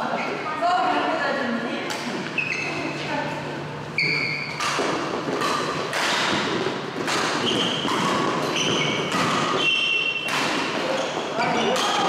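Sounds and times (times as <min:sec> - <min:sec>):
shoes squeaking on floor: 0:02.3 - 0:03.0, 0:03.9 - 0:04.7, 0:07.4 - 0:11.8
rackets striking shuttlecock: 0:04.3 - 0:12.0.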